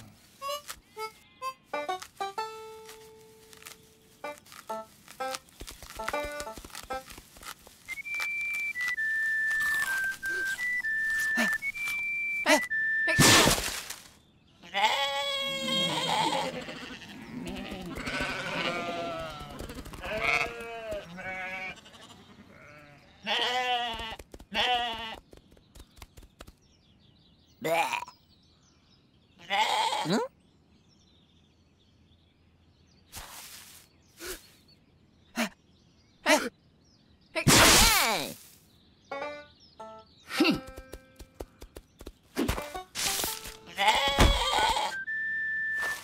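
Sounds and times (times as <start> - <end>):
cartoon sheep bleating: 14.7 - 22.0, 43.7 - 45.0.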